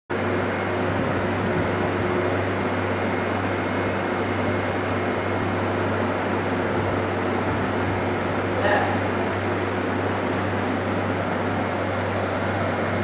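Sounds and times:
fan-like rushing noise: 0.1s - 13.0s
refrigeration unit humming: 0.1s - 13.0s.

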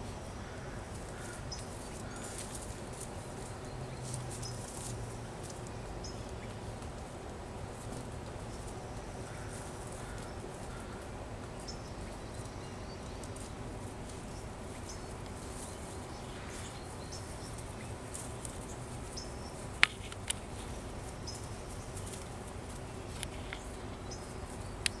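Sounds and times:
faint high chirps and ticks: 8.3s - 25.0s.

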